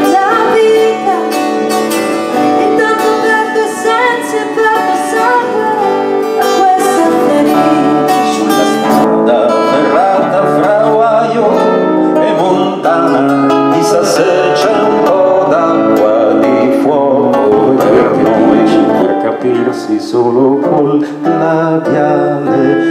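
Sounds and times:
acoustic band playing: 0:00.0 - 0:22.9
guitars: 0:00.0 - 0:22.9
accordion: 0:17.4 - 0:20.1.

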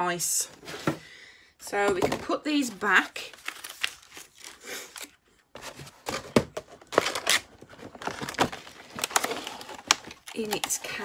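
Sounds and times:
plastic crinkling: 0:02.7 - 0:06.2, 0:06.8 - 0:11.0
plastic clacks: 0:06.0 - 0:11.0.

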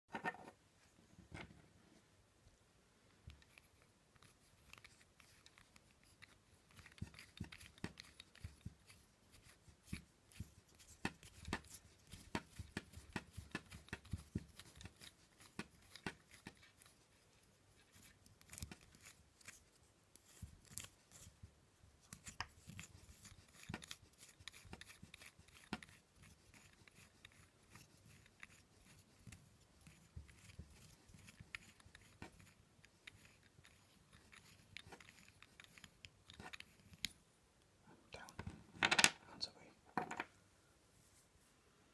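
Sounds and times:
plastic nut clicking and rubbing: 0:03.2 - 0:17.1, 0:22.0 - 0:37.2, 0:38.3 - 0:39.2, 0:39.9 - 0:40.4.

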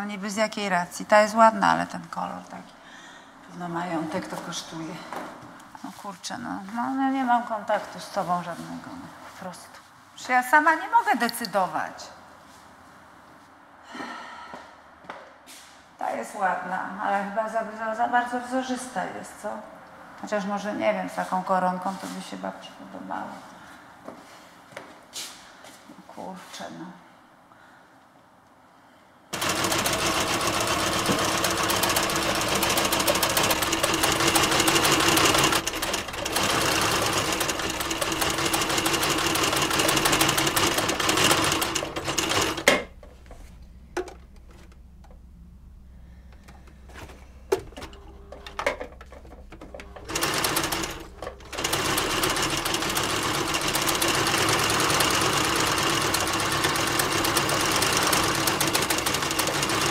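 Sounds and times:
sewing machine stitching: 0:29.4 - 0:42.9, 0:47.6 - 0:59.9.

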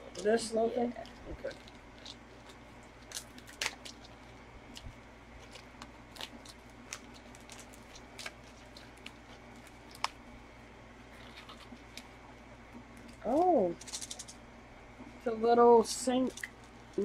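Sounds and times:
plastic packaging crinkling: 0:01.0 - 0:12.2, 0:12.9 - 0:14.4.

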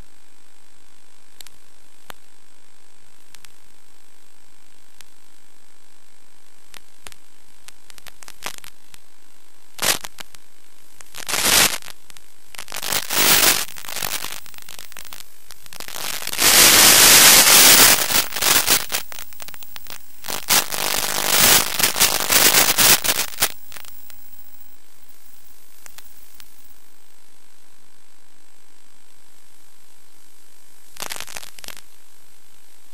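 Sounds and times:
steady low radio hiss: 0:00.0 - 0:32.9
radio static crackling: 0:06.7 - 0:09.2, 0:09.8 - 0:26.8, 0:30.9 - 0:31.9.

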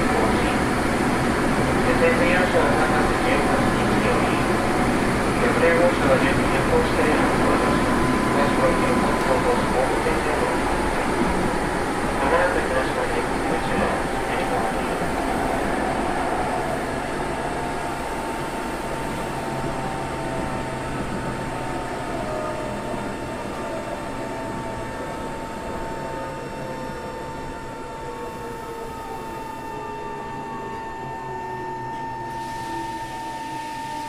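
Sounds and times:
steady fixed-pitch whine: 0:00.0 - 0:34.0
train motor whine falling in pitch: 0:28.5 - 0:34.0.

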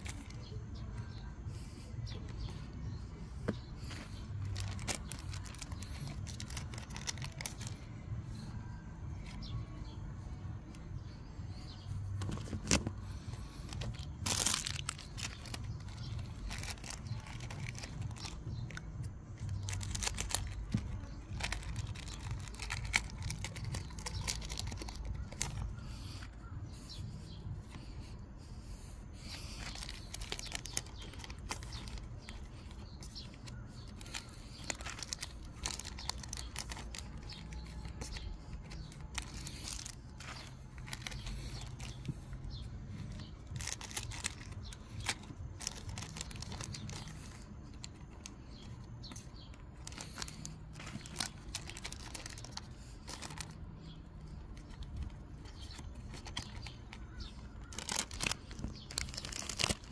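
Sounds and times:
cards rustling and clicking: 0:00.0 - 0:09.6, 0:10.7 - 0:59.9
foil wrappers tearing: 0:03.9 - 0:07.9, 0:12.2 - 0:25.8, 0:29.4 - 0:48.8, 0:49.8 - 0:53.7, 0:54.3 - 0:59.9.

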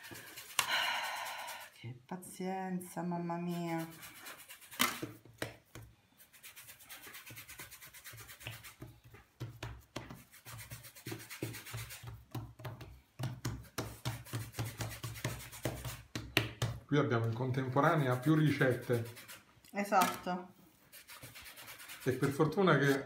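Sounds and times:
hands kneading dough: 0:03.5 - 0:19.9.

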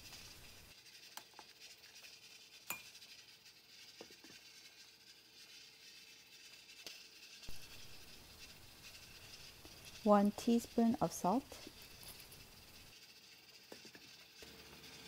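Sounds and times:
spoon clinking in metal pot: 0:02.7 - 0:02.9.

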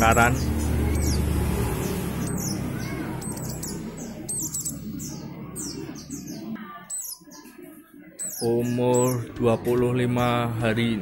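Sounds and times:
road traffic rumble: 0:00.0 - 0:06.6
birds chirping: 0:00.0 - 0:11.0.

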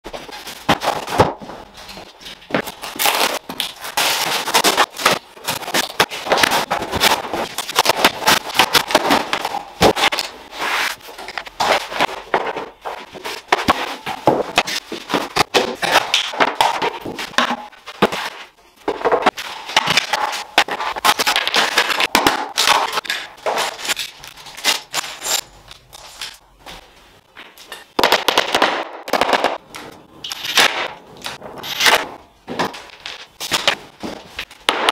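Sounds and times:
boards knocking and scraping: 0:03.3 - 0:24.0.

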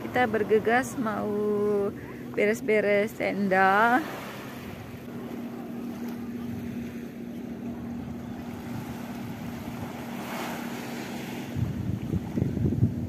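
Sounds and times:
low steady hum: 0:00.0 - 0:13.0
surf: 0:00.0 - 0:13.0
wind noise on microphone: 0:11.2 - 0:13.0.

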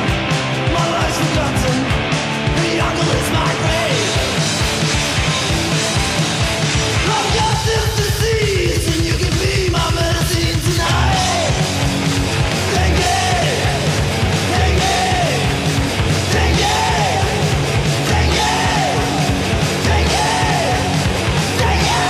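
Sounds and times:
loud rock band: 0:00.0 - 0:22.0
shouted vocals: 0:10.6 - 0:11.8, 0:12.6 - 0:22.0.

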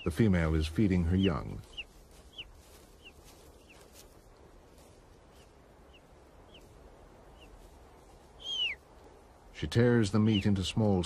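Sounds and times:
bird chicks cheeping: 0:00.0 - 0:04.1, 0:05.3 - 0:07.7, 0:08.3 - 0:08.8.

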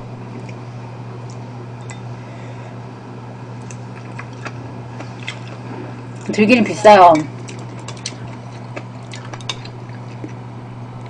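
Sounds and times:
steady low hum: 0:00.0 - 0:11.0
chewing: 0:03.6 - 0:06.4, 0:07.2 - 0:10.4.

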